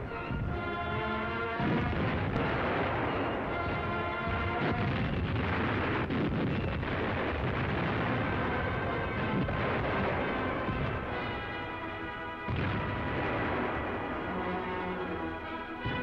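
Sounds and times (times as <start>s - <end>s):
music: 0.0s - 16.0s
sharp bangs: 1.4s - 16.0s
gunfire and explosions: 1.6s - 11.8s, 12.4s - 16.0s.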